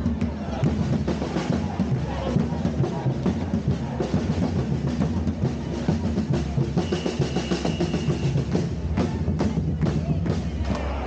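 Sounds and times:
drum group pounding fast beat: 0.0s - 11.0s
high steady whistle: 6.8s - 8.4s.

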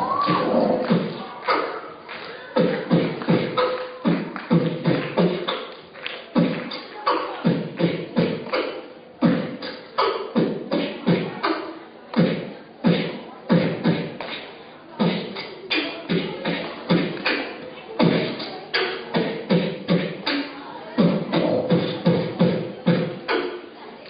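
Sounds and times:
beatboxing: 0.0s - 23.8s.

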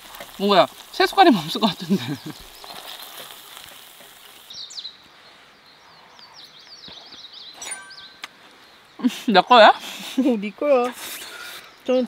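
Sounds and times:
food sizzling on a griddle: 0.0s - 5.0s
small birds chirping: 0.0s - 12.0s.

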